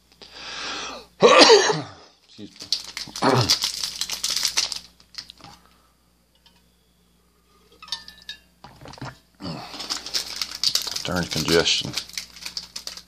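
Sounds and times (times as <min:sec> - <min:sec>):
man clearing his throat: 0:01.2 - 0:02.0
foil wrapper crinkling: 0:02.2 - 0:05.7, 0:08.8 - 0:13.0.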